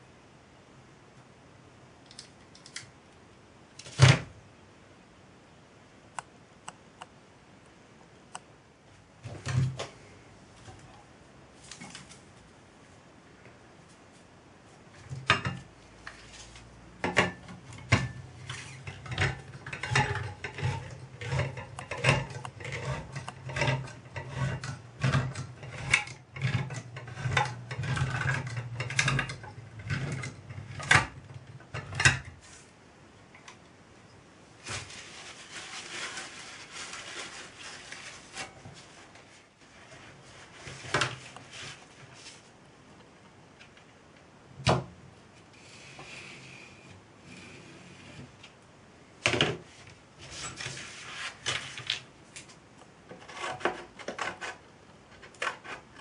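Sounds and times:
paper rustling: 0:34.6 - 0:42.6, 0:50.2 - 0:52.5.

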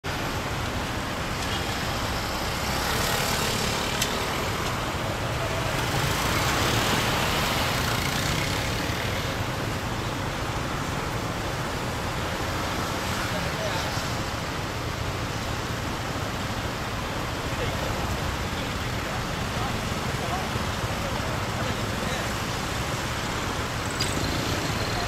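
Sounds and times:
passing cars and vans: 0:00.0 - 0:25.0
motorcycle engines idling: 0:00.2 - 0:13.2.

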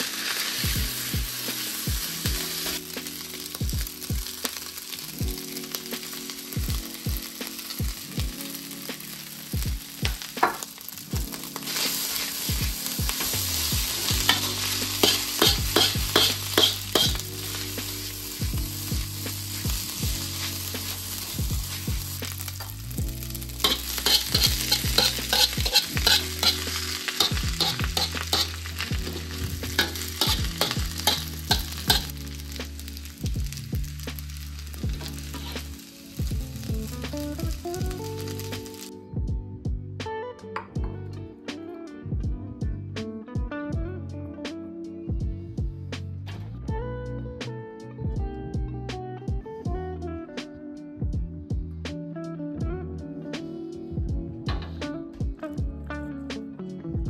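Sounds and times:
rice sizzling in a wok: 0:00.0 - 0:38.9
utensil clacking and scraping wok: 0:11.5 - 0:18.4, 0:19.2 - 0:36.3.

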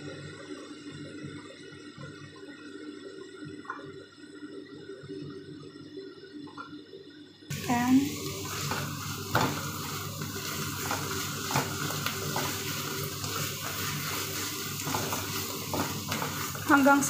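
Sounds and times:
meat sizzling in a frying pan: 0:07.5 - 0:17.0
spatula scraping a pan: 0:08.3 - 0:17.0.

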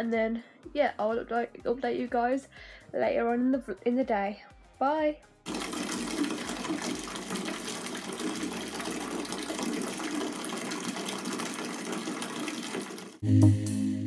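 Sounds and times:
water gushing into bathtub: 0:05.5 - 0:13.2.

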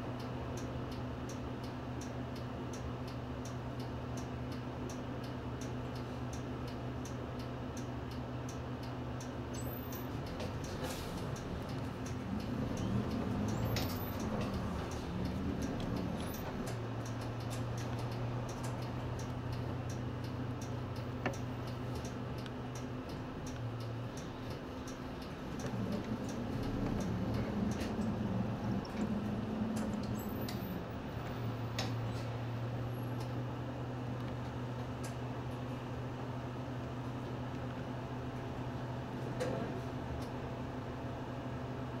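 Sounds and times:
bus engine hum: 0:00.0 - 0:42.0
light ticks: 0:00.2 - 0:32.3.

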